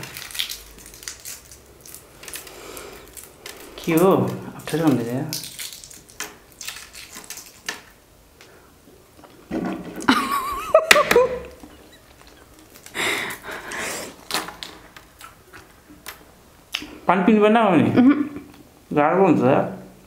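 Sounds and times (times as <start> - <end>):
eggshells cracking: 0.0 - 9.5, 11.0 - 16.9
person laughing: 10.0 - 13.8, 17.9 - 18.5.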